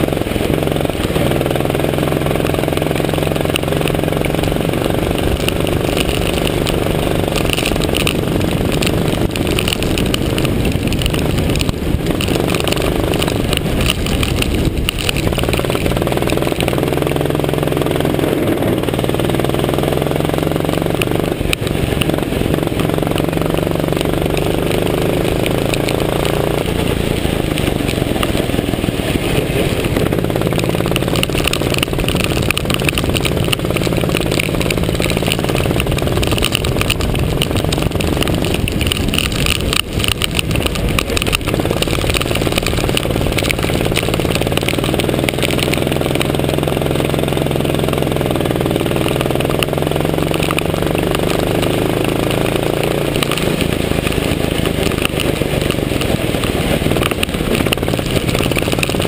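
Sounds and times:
go-kart engine revving: 0.0 - 59.0.

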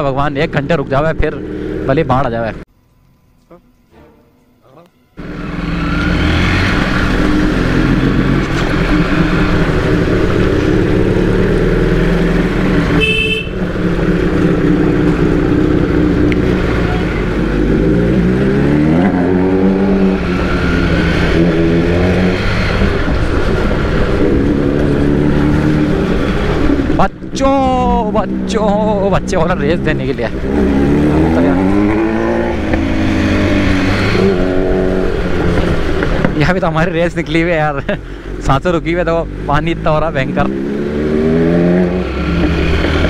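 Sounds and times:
motorcycle engine revving: 0.4 - 2.6, 5.2 - 43.0
short horn beep: 13.0 - 13.6.

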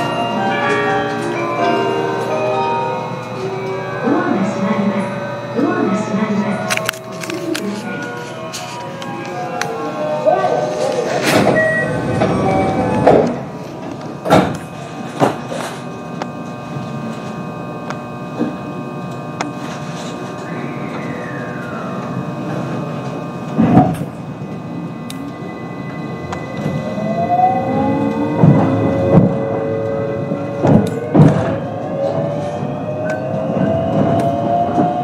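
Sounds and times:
electric train humming: 0.0 - 35.0
traction motor whine rising: 0.0 - 35.0.

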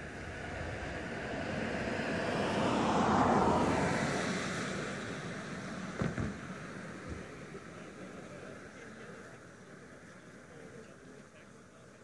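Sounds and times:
vehicle passing by: 0.1 - 7.0.

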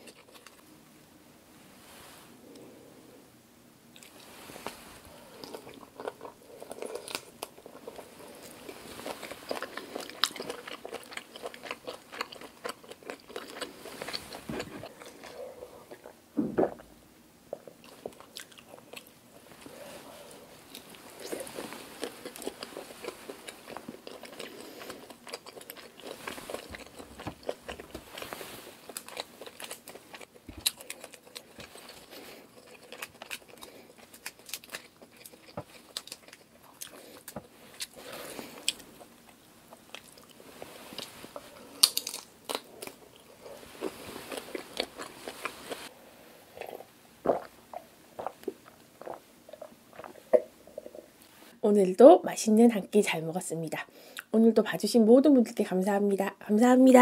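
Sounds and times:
person gulping a drink: 16.0 - 16.9, 46.6 - 51.1
crunchy bites and wet chewing: 20.7 - 40.4.

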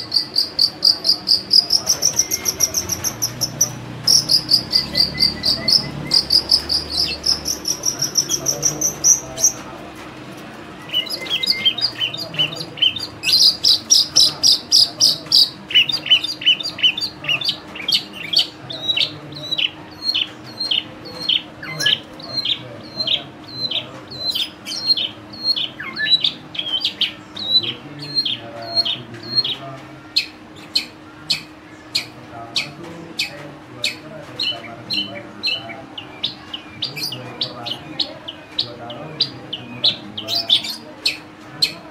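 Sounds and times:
bird singing high trills: 0.0 - 9.6.

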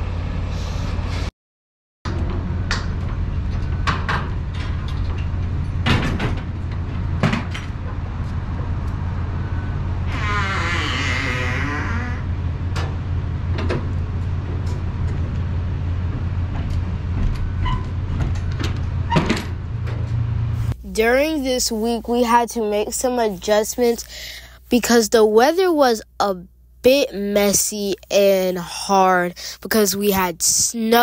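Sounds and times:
metal door clanks and knocks: 2.1 - 8.0, 16.1 - 20.2
low engine hum: 2.1 - 21.0
door hinge squeal: 10.1 - 12.3.

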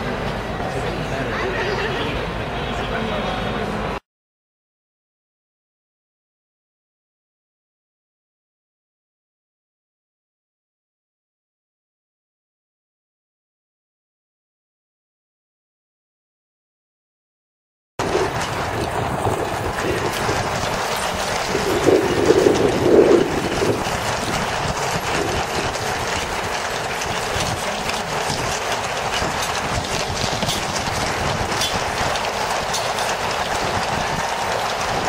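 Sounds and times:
horse hooves clattering on tarmac: 18.0 - 35.0.

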